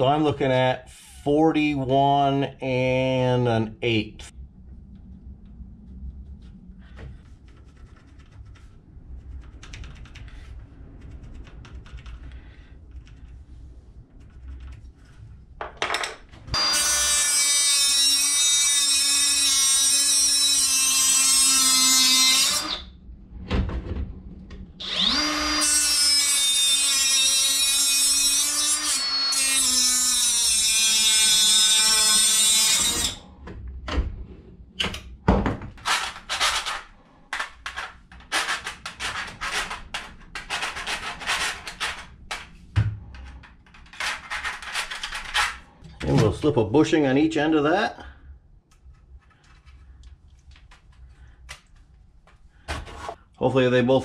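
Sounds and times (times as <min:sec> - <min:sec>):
angle grinder cutting metal: 0:16.6 - 0:22.9, 0:24.8 - 0:33.2.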